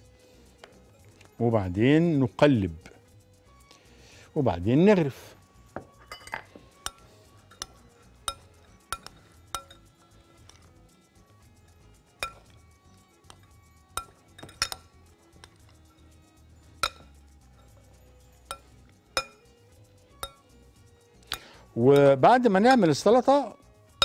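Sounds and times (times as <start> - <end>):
metal spoon clinking on glass bowl: 5.8 - 10.7, 12.2 - 12.6, 13.2 - 16.0, 16.7 - 19.5, 20.1 - 20.6, 21.3 - 22.2.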